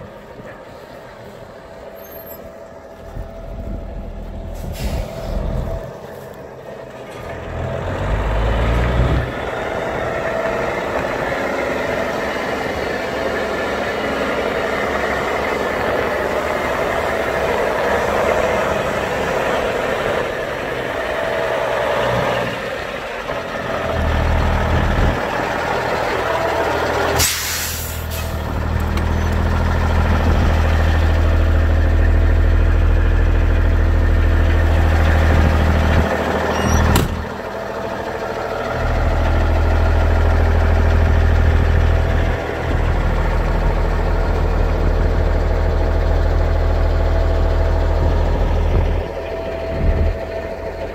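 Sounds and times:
diesel truck engine idling: 0.0 - 50.9.

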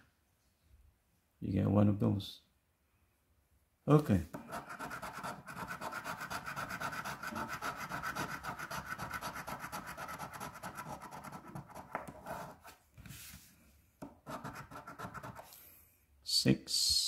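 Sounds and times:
coin scratching paper ticket: 4.4 - 12.6, 14.2 - 15.4.

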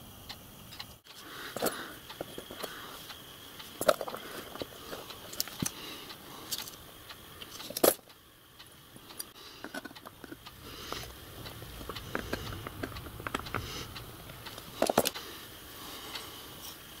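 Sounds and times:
small metal parts clinking: 1.5 - 2.8, 3.6 - 5.8, 7.5 - 8.1, 9.2 - 15.2.

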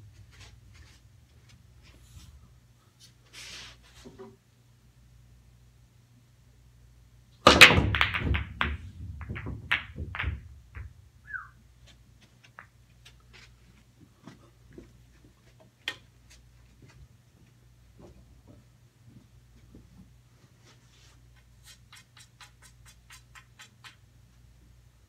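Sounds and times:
pool balls clicking: 7.4 - 11.0
cue ball cracking into rack: 7.5 - 10.9
balls knocking cushions: 7.5 - 11.0
balls rolling on cloth: 7.9 - 11.0.

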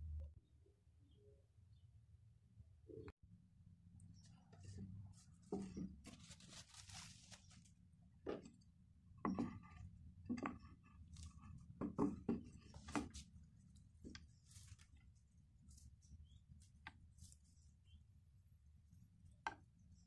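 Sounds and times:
soft rustling: 4.2 - 7.8.

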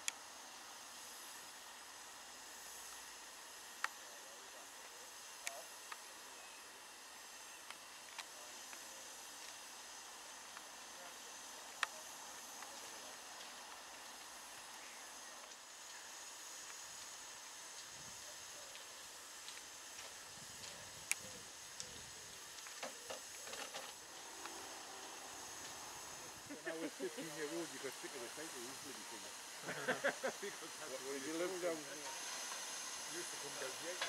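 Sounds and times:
steam hissing from locomotive: 0.0 - 34.0.

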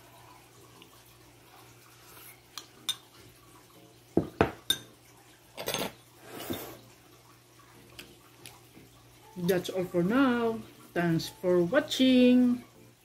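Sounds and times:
spoon clinking on ceramic bowl: 2.6 - 3.1, 4.2 - 5.0.

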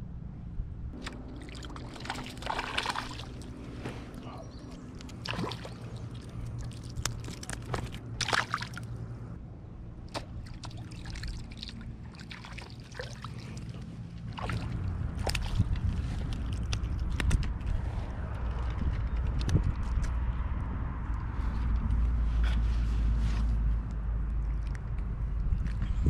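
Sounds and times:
fish splashing in water: 1.0 - 9.0, 10.1 - 16.6
wet handling of fish: 1.0 - 9.1, 10.1 - 17.2.

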